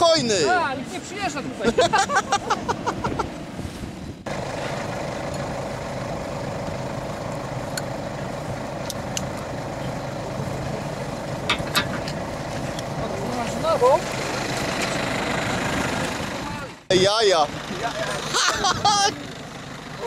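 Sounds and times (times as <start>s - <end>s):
voices: 0.0s - 3.0s, 6.8s - 20.0s
distant paramotor engine drone: 4.3s - 20.0s
handling noise: 11.2s - 13.5s.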